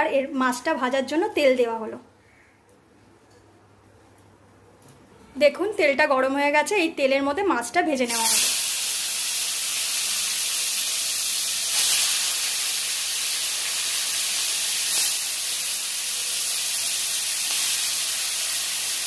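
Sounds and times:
fish sizzling in hot oil: 0:08.1 - 0:19.0.

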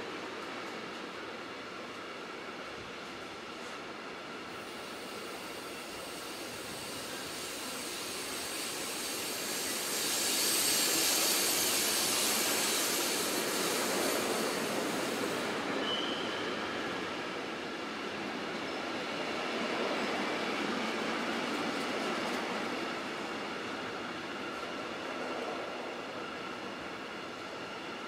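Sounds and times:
train rolling past: 0:00.0 - 0:28.0
wheels squealing on rail: 0:04.6 - 0:17.5.

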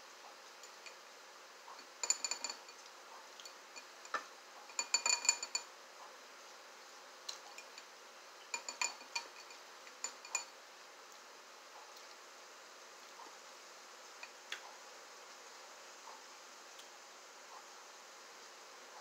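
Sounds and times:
plastic fork clinking glass bowl: 0:01.8 - 0:02.8, 0:04.1 - 0:05.7, 0:08.6 - 0:10.5.

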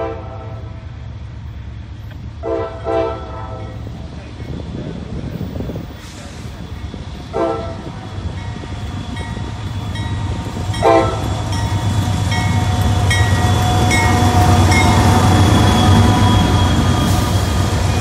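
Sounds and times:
train horn blast: 0:00.0 - 0:00.8, 0:02.4 - 0:03.9, 0:07.2 - 0:08.2, 0:10.7 - 0:18.0
diesel locomotive engines rumbling: 0:00.0 - 0:18.0.

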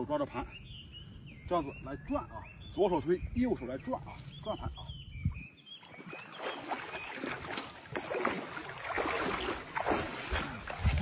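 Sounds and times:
rubber waders swishing: 0:06.0 - 0:11.0.

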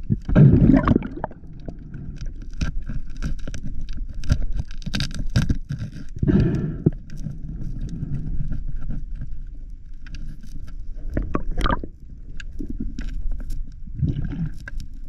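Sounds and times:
water gurgling: 0:00.0 - 0:02.6, 0:11.0 - 0:13.2, 0:13.9 - 0:14.8
underwater clicks and crackles: 0:00.0 - 0:15.0
underwater rumble of moving water: 0:00.0 - 0:15.0.

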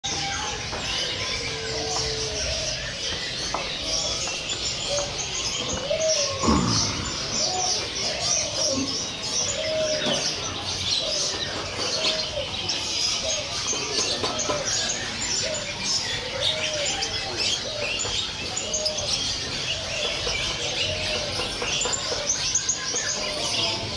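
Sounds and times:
songbirds chirping and singing: 0:00.0 - 0:23.9.

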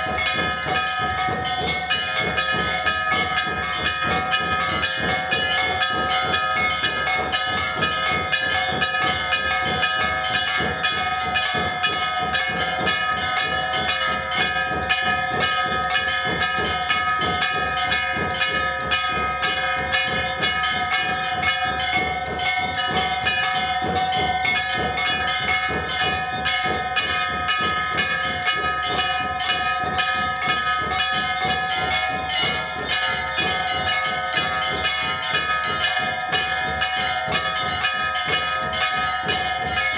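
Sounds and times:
temple bells ringing rapidly: 0:00.0 - 0:39.9.

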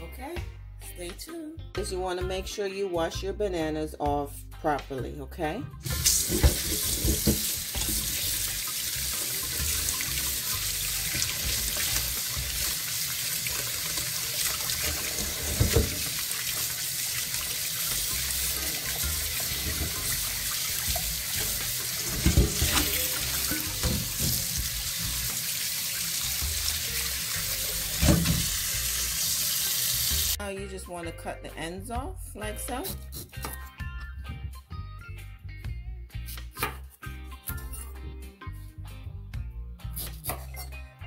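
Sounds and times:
tap water splashing in sink: 0:05.9 - 0:29.0.

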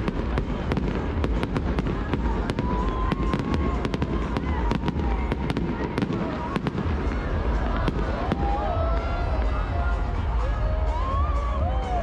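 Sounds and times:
fireworks crackling pops: 0:00.0 - 0:09.6.

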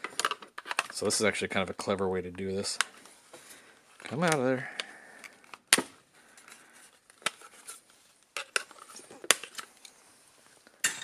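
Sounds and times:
plastic clicks and snaps: 0:04.0 - 0:06.5.

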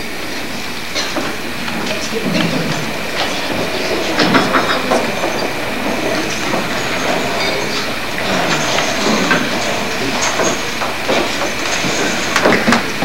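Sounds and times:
murmur of voices: 0:00.0 - 0:13.0
knocks and clatter: 0:01.0 - 0:13.0
faint steady high tone: 0:02.0 - 0:11.5.

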